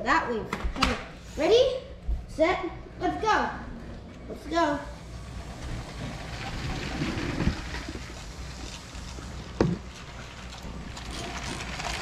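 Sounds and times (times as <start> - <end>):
wheels rattling over track joints: 5.0 - 12.0.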